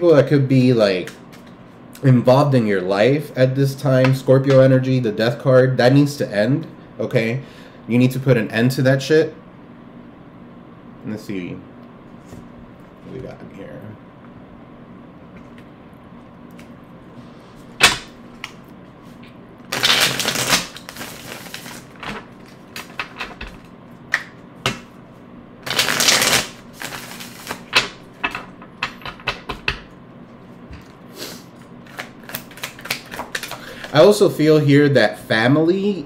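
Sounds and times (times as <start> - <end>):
cards shuffled by hand: 19.7 - 23.7, 25.6 - 27.6.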